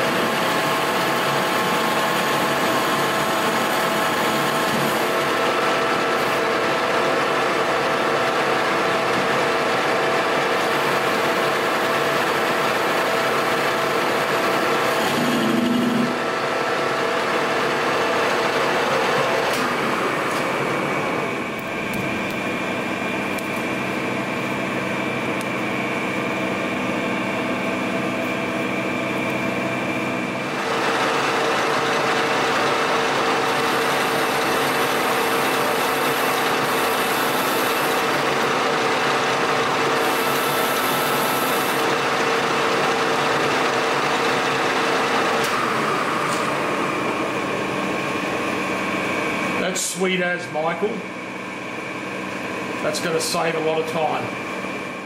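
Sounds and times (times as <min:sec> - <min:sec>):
lathe cutting steel: 0:00.0 - 0:22.9, 0:30.4 - 0:48.6
metal lathe whine: 0:00.0 - 0:49.7.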